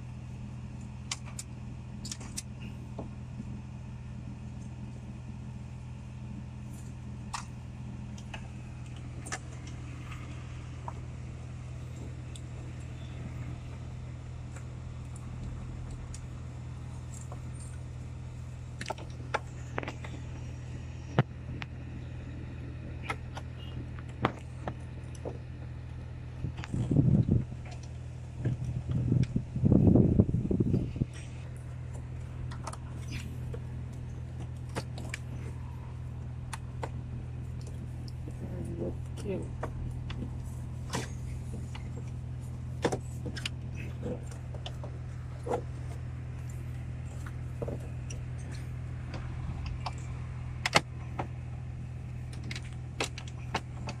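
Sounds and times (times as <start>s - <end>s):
low hum inside car cabin: 0.0s - 54.0s
clicks of plastic parts being handled: 52.1s - 54.0s.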